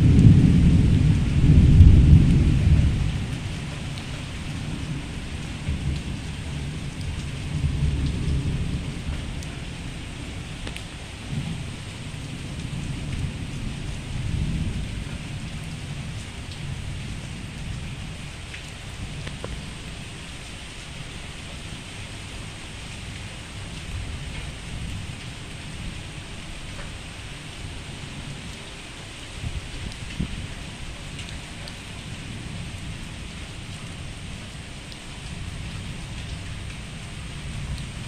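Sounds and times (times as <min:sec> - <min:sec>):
thunder rumbling: 0:00.0 - 0:21.8
steady rain: 0:00.0 - 0:38.0.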